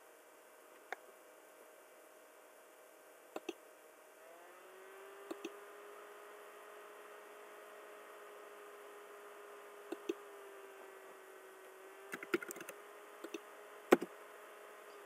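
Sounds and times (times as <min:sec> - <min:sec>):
faint steady hum: 0:00.0 - 0:15.0
keyboard and mouse clicks: 0:03.4 - 0:03.6, 0:05.3 - 0:05.6, 0:09.9 - 0:10.2, 0:12.1 - 0:14.1.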